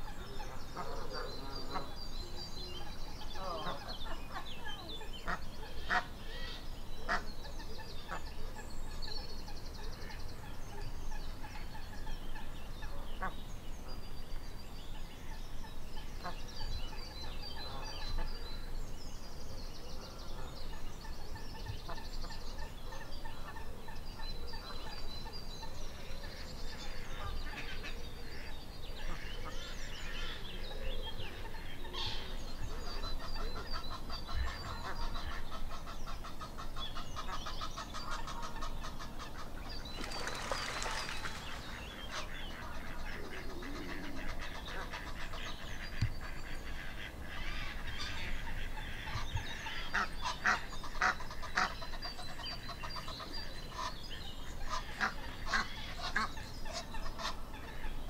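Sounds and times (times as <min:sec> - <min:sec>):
small birds singing trills: 0:00.0 - 0:58.0
waterfowl calling: 0:33.0 - 0:54.0.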